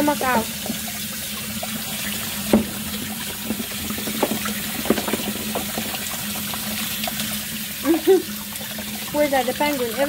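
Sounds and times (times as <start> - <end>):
faucet water splashing into sink: 0.0 - 10.0
brief knocks: 2.5 - 6.0.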